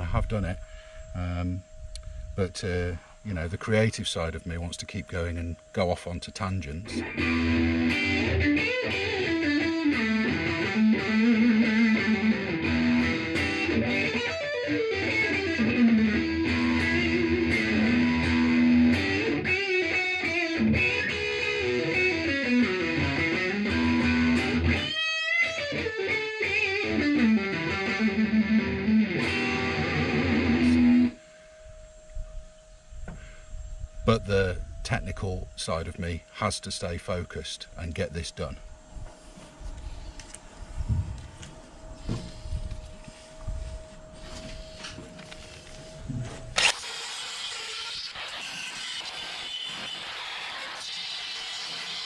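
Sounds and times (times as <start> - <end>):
electric guitar solo: 6.8 - 31.2.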